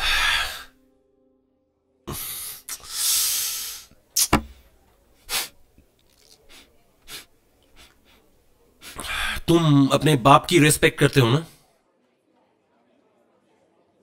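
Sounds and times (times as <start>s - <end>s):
man breathing heavily: 0.0s - 0.8s, 2.1s - 3.9s, 6.5s - 9.5s
man sniffing: 2.1s - 4.5s.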